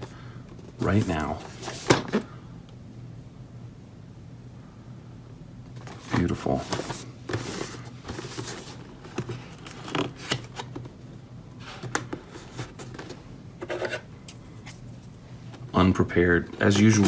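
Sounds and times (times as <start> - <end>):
cardboard box rustling and scraping: 5.8 - 10.6.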